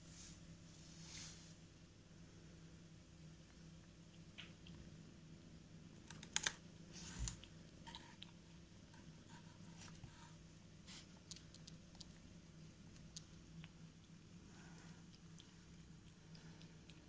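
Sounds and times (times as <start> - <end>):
cats lapping milk: 11.0 - 17.0.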